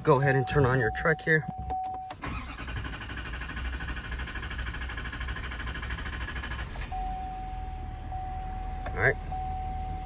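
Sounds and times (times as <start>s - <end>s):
engine starter cranking: 2.1s - 7.0s.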